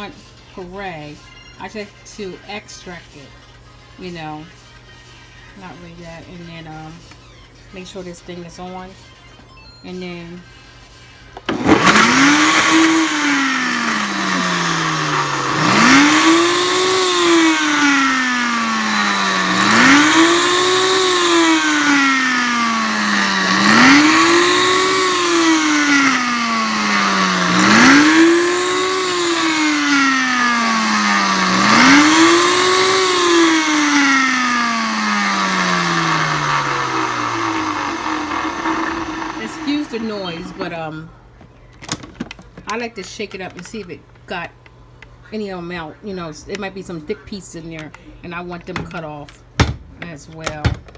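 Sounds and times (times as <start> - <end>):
blender motor speeding up: 11.5 - 40.8.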